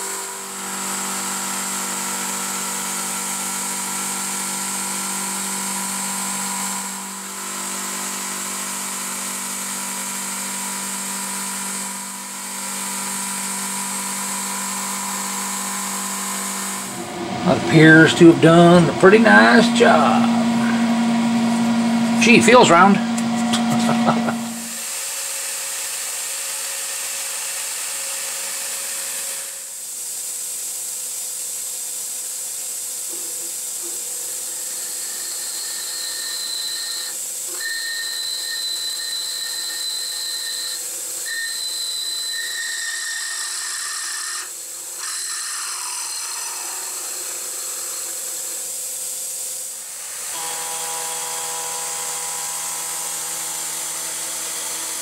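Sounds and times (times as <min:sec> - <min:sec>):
high thin drill whine: 0:00.0 - 0:55.0
low machine hum: 0:15.0 - 0:24.8.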